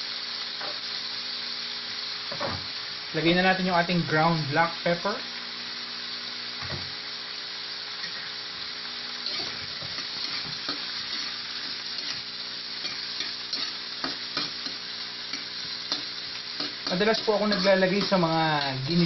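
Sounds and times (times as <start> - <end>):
vegetables sizzling in oil: 0.0 - 19.0
metal spatula scraping a pan: 9.2 - 19.0.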